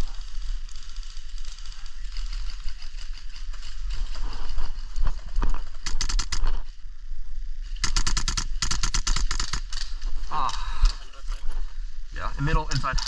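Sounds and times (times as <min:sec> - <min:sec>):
airsoft gunfire bursts: 0:05.8 - 0:06.5, 0:07.8 - 0:09.9.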